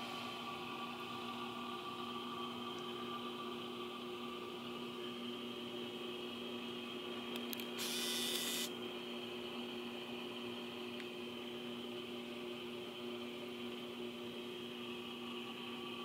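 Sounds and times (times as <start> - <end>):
steady multi-tone hum: 0.0 - 16.0
burst of hiss: 7.8 - 8.7.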